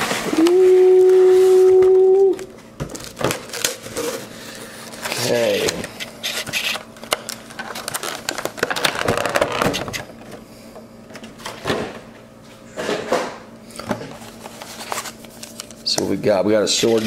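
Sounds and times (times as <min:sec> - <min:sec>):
plastic packaging crinkling: 0:06.2 - 0:10.0.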